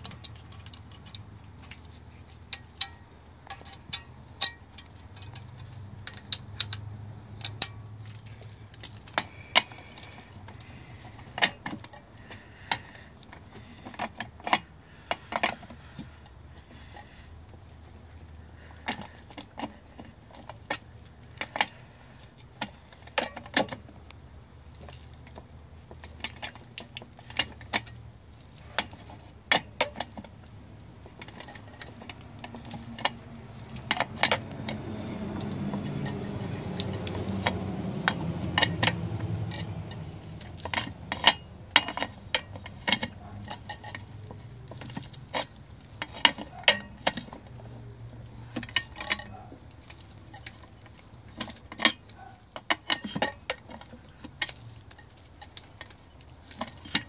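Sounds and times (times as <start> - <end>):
metal tool clinks: 2.4 - 8.3, 35.8 - 37.2, 48.6 - 49.5.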